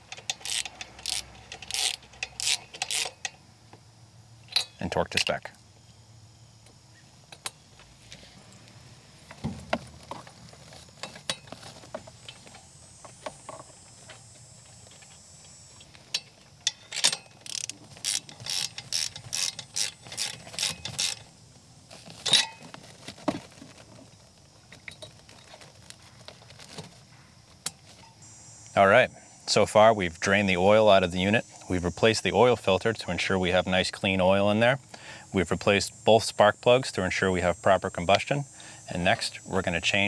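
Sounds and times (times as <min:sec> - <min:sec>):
ratchet wrench clicking: 0:00.0 - 0:03.4, 0:16.2 - 0:21.3
tool handling clicks and knocks: 0:00.0 - 0:03.4, 0:04.5 - 0:05.5, 0:09.3 - 0:21.3, 0:22.0 - 0:23.4.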